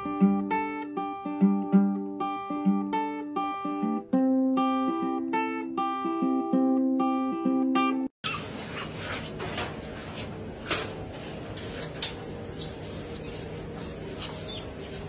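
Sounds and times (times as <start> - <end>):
otters squeaking and chirping: 11.6 - 15.0.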